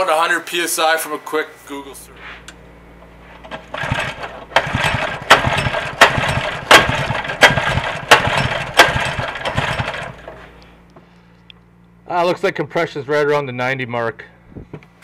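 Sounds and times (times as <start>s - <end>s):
whirr of engine cranking: 3.4s - 10.7s.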